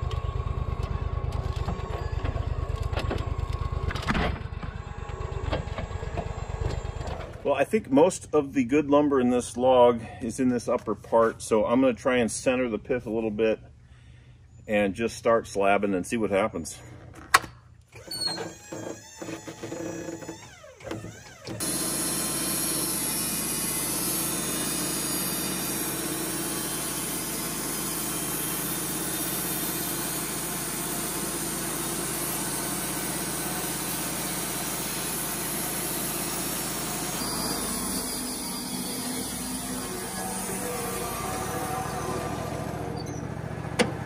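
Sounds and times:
sawmill engine running: 0.0s - 9.9s, 18.0s - 44.0s
bandsaw sawing log: 18.0s - 43.0s.

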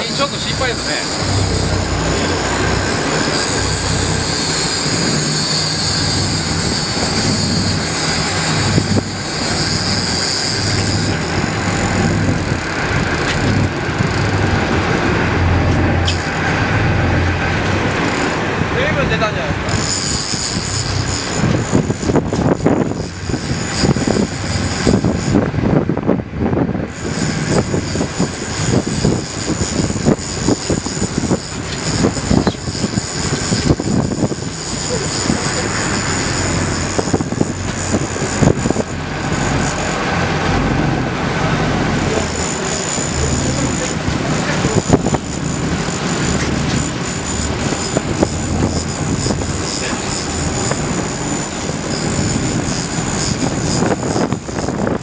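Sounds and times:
boat engine humming: 0.0s - 55.0s
high steady whine: 0.0s - 55.0s
sea noise: 0.0s - 55.0s
wind: 0.0s - 55.0s.

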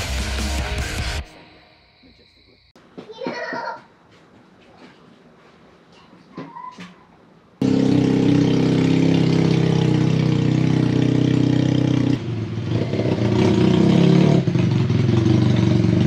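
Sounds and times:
motorcycle engine approaching: 7.6s - 16.0s.

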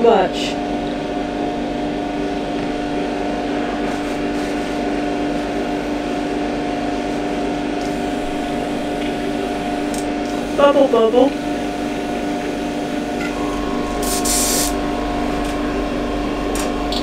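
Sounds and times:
small electric motor humming: 7.8s - 15.3s.

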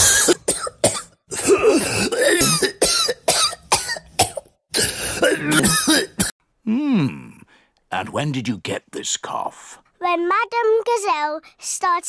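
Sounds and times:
cartoon voice coughing: 0.0s - 6.3s.

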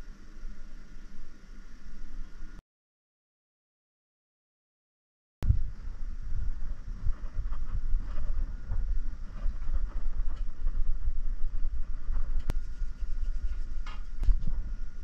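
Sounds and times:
low rumbling microphone noise: 5.4s - 15.0s
strip scraping on plastic insulation: 12.3s - 14.7s.

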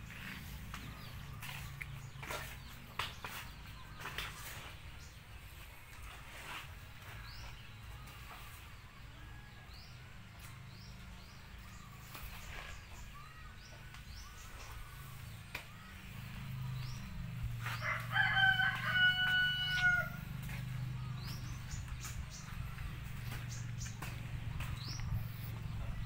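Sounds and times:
rooster crowing: 17.7s - 20.2s.

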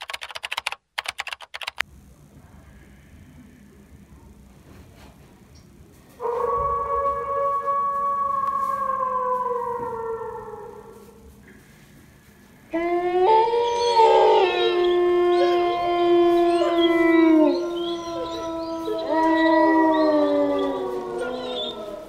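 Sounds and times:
dog howling: 6.2s - 11.3s, 12.7s - 22.0s.

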